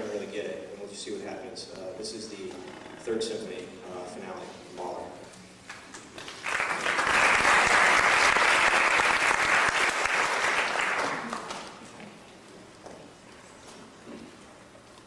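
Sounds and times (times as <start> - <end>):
audience applauding: 5.7 - 11.7.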